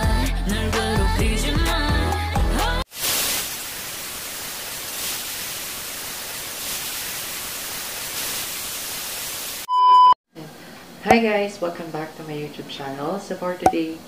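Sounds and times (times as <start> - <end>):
music: 0.0 - 2.8
static hiss: 2.9 - 9.7.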